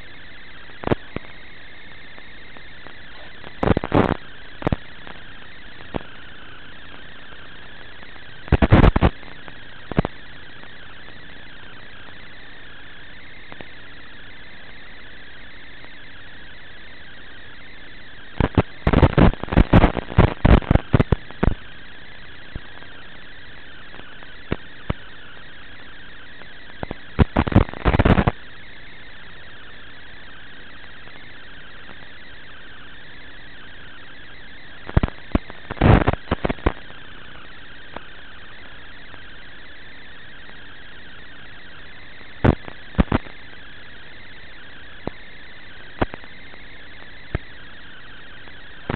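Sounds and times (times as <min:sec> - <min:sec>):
crackling static bursts: 0:00.0 - 0:48.9
steady radio hiss: 0:00.0 - 0:48.9.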